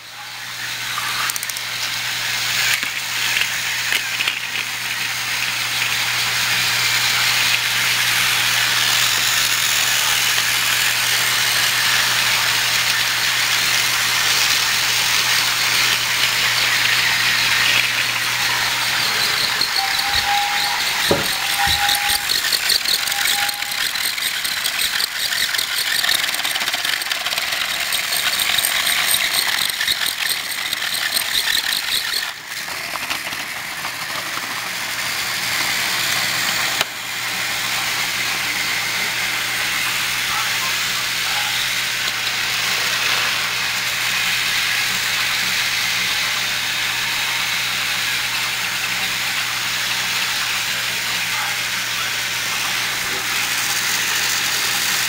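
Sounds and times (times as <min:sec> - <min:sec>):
toy train motors whirring: 0:00.0 - 0:55.0
rapid ticking rattle: 0:12.8 - 0:32.4.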